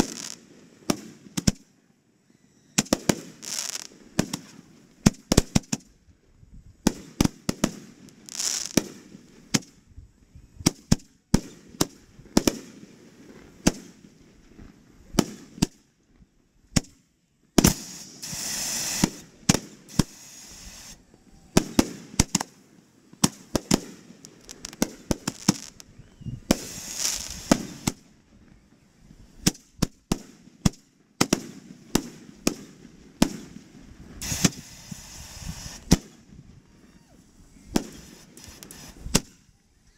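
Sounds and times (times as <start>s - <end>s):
fireworks hissing: 0.0s - 1.2s, 2.8s - 5.8s, 6.8s - 9.7s, 17.6s - 28.1s, 31.3s - 36.4s, 37.2s - 39.3s
fireworks bangs: 2.8s - 5.8s, 6.8s - 9.7s, 17.6s - 28.1s, 29.3s - 36.3s, 37.7s - 39.3s.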